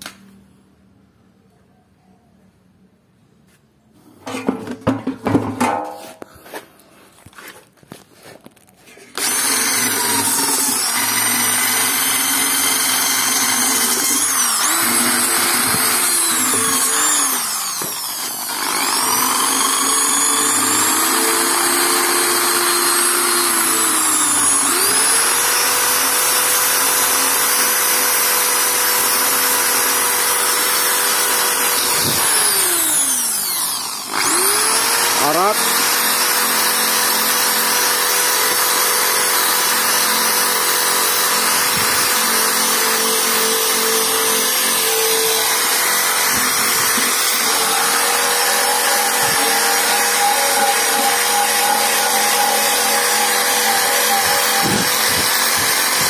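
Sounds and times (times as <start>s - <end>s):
knocking and handling: 4.2s - 9.1s
drill wire brush whine: 9.1s - 56.0s.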